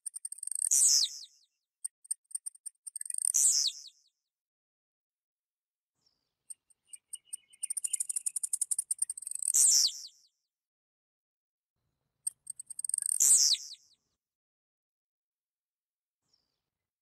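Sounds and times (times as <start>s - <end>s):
bird singing high trill: 3.0s - 4.0s, 6.9s - 10.2s, 12.8s - 13.9s.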